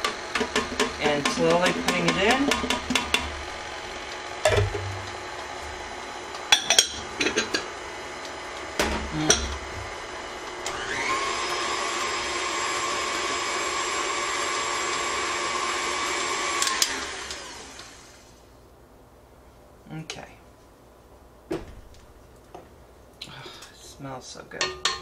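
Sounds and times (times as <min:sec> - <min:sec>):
stand mixer motor whining: 0:00.0 - 0:06.5, 0:07.8 - 0:18.2.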